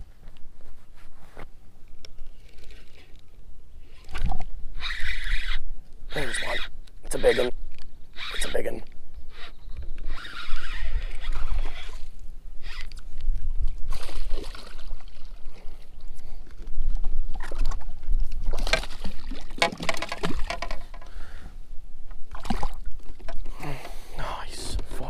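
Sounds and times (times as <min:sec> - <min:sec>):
wind rumble on microphone: 0:09.0 - 0:18.6
water splashing against boat: 0:10.4 - 0:21.2, 0:22.2 - 0:24.1.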